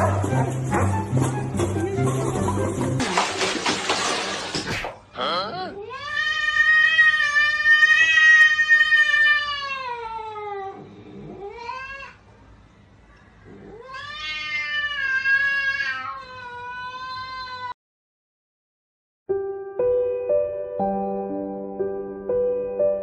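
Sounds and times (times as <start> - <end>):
cat yowling: 5.8 - 12.2, 13.6 - 17.8.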